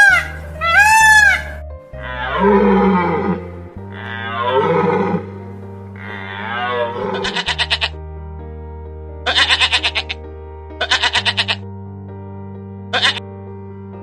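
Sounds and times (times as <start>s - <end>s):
goat bleating: 0.0s - 1.5s, 6.0s - 7.9s, 9.3s - 10.2s, 10.8s - 11.6s, 13.0s - 13.2s
deer calling: 0.0s - 7.9s, 9.3s - 10.2s, 10.8s - 11.6s, 12.9s - 13.2s
background music: 0.0s - 14.0s.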